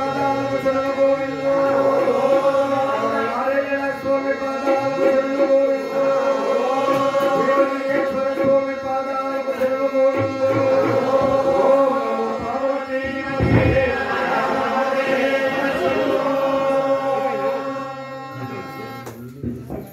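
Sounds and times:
men singing together: 0.0 - 18.1
harmonium: 0.0 - 19.9
tabla drum strokes: 10.1 - 14.1.

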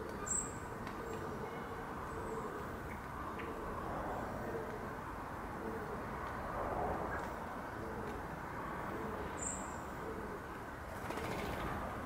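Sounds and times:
pigeon cooing: 8.8 - 11.7.

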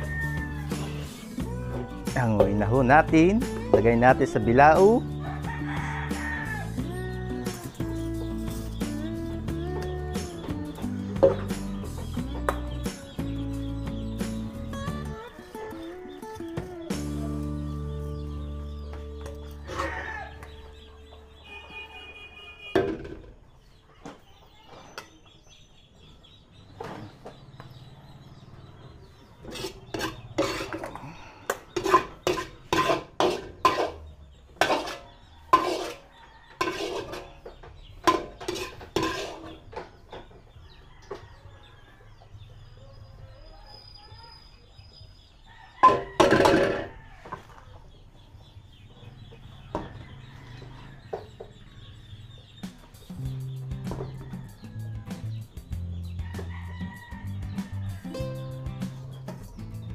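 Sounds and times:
metal utensil scraping a pan: 29.4 - 31.0, 31.7 - 37.4, 38.0 - 39.6.

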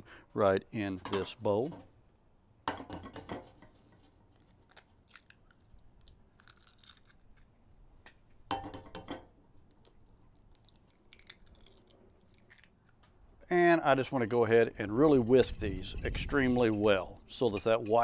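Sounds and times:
eggs cracking on a bowl rim: 2.7 - 13.0
eggshell crunching: 2.9 - 13.4.

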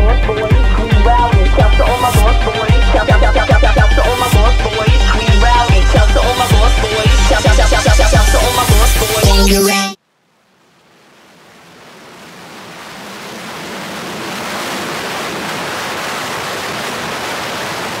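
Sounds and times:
loud electronic music: 0.0 - 10.0.

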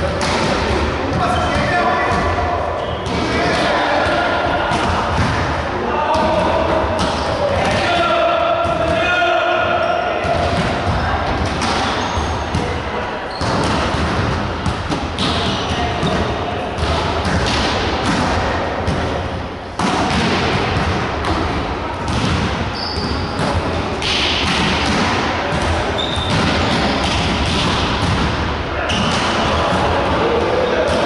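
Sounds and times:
players shouting: 1.1 - 12.6
volleyball struck with thuds: 3.0 - 8.0, 10.2 - 12.8, 13.4 - 30.2.

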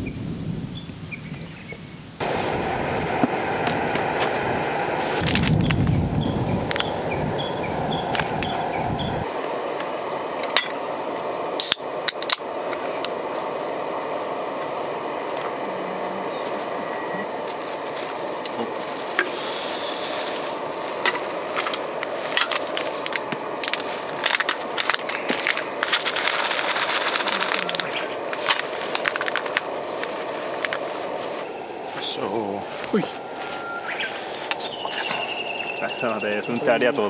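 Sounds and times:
rushing background noise: 2.0 - 37.0
short hiss: 18.4 - 20.6.

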